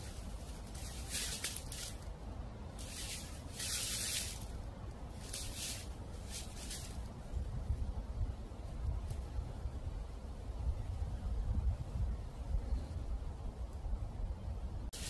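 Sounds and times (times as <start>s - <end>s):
dry leaves rustling: 0.0s - 7.8s.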